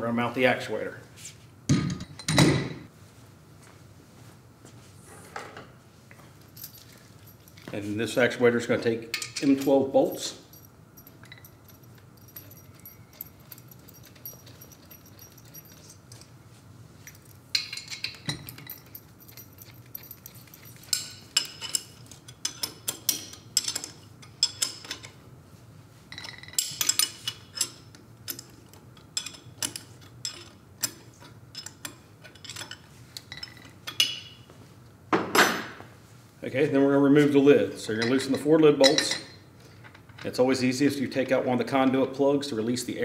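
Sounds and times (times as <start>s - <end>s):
bolts clinking against metal: 8.9s - 16.4s, 17.0s - 25.2s, 26.1s - 34.5s, 35.2s - 35.8s, 37.2s - 40.4s.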